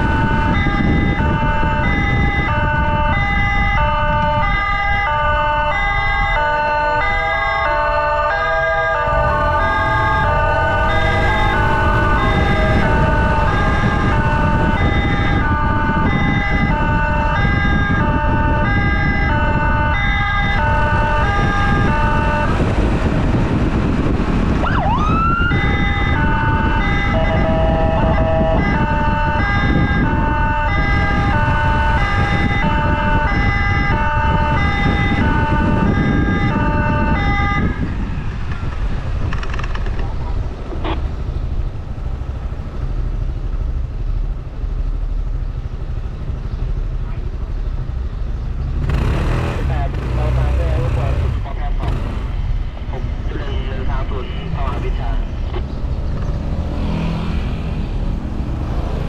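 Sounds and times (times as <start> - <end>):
two-tone emergency siren: 0.0 - 38.2
motorcycle road noise: 0.0 - 59.0
wind noise: 0.0 - 59.0.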